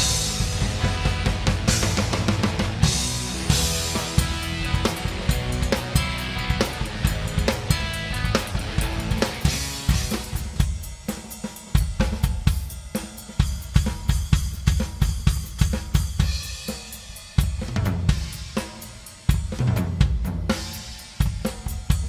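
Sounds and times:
heavy low drum hits: 0:00.0 - 0:10.8
rock drum kit playing: 0:00.0 - 0:22.0.

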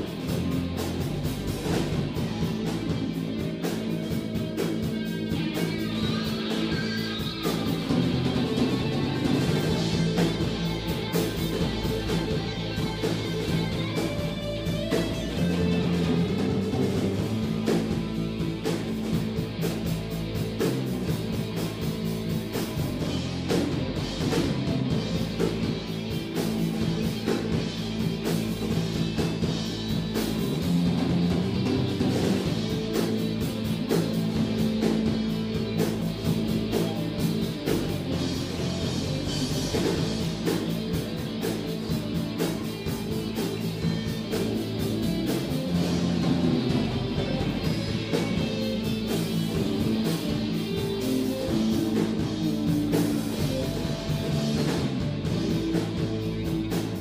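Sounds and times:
drum kit beat: 0:00.0 - 0:57.0
electric bass: 0:00.0 - 0:57.0
electric guitars: 0:00.0 - 0:57.0.

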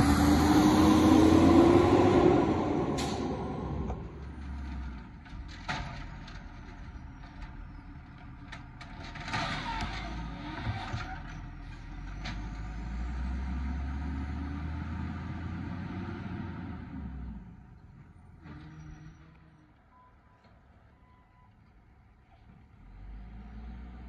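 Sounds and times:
truck engine running: 0:00.0 - 0:09.2.

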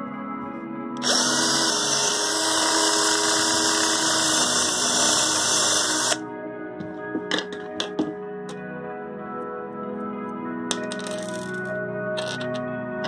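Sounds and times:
background music: 0:00.0 - 0:13.0
power drill boring plastic: 0:01.0 - 0:06.2.

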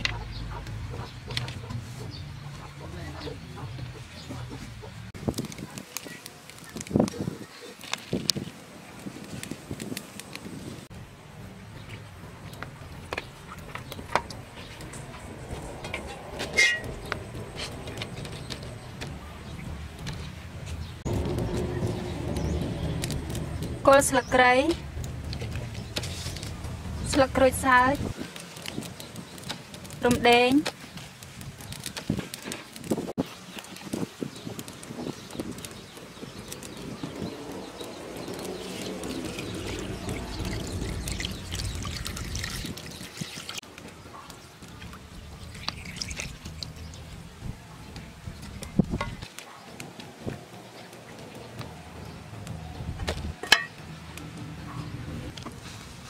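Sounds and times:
water pouring and splashing: 0:13.4 - 0:43.8, 0:44.6 - 0:47.5
metal tray scraping a pot: 0:16.0 - 0:17.0.

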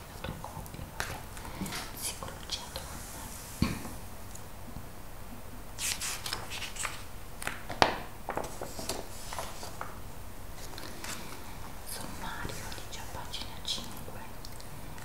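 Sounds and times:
page flipping snap: 0:05.8 - 0:09.9
magazine pages rustling: 0:05.8 - 0:10.0.

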